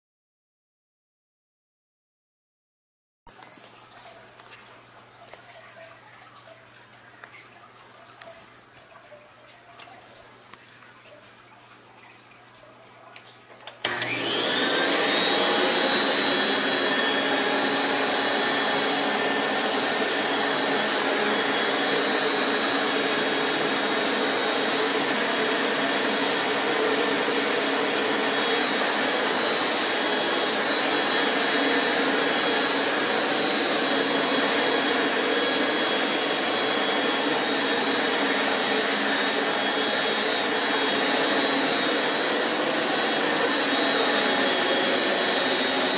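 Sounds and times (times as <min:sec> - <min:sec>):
floor tool on hard floor: 0:13.8 - 0:45.9
vacuum cleaner motor whine: 0:13.8 - 0:45.9.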